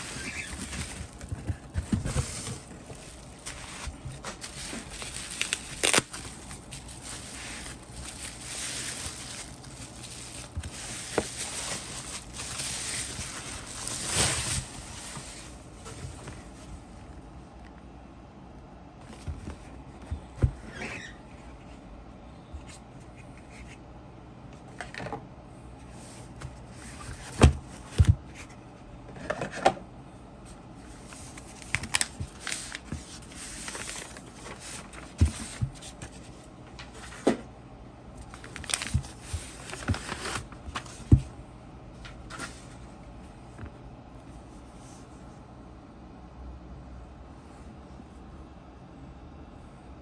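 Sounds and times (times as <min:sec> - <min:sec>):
paper rustling and crinkling: 0:00.0 - 0:16.8, 0:30.9 - 0:37.4, 0:38.2 - 0:41.3.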